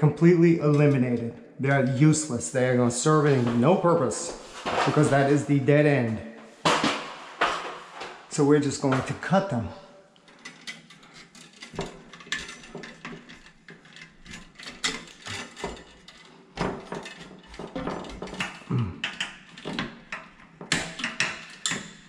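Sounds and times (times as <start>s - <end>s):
tools clicking and knocking: 10.2s - 22.0s.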